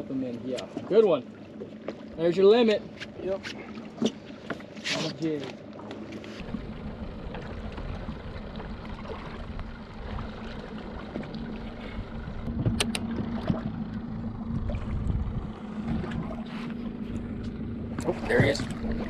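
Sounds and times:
steady low hum: 0.0s - 19.0s
water sloshing against hull: 0.0s - 19.0s
wind on microphone: 14.4s - 17.1s.

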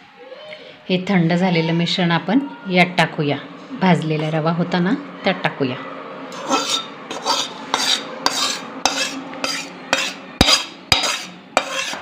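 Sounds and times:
metal spoon scraping steel pan: 6.3s - 12.0s.

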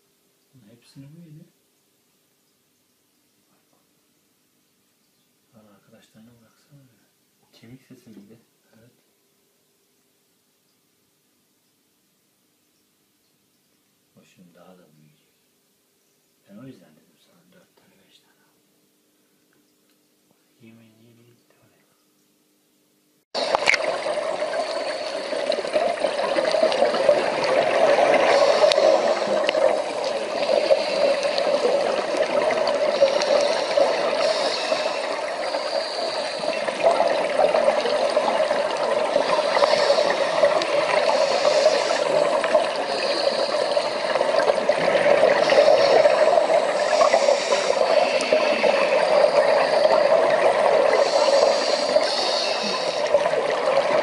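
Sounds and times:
bright bursts of hiss: 23.4s - 54.0s
underwater rushing hiss: 23.4s - 54.0s.

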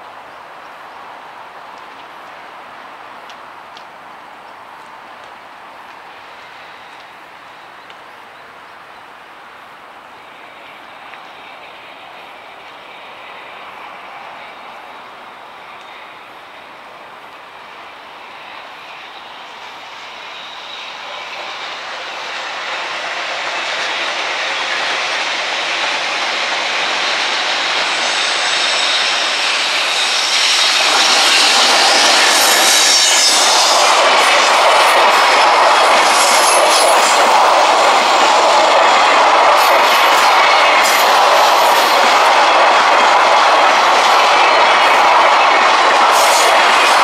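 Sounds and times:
electric locomotive approaching: 0.0s - 47.0s
train wheels clattering: 20.1s - 47.0s
high wheel squeal: 25.8s - 47.0s.

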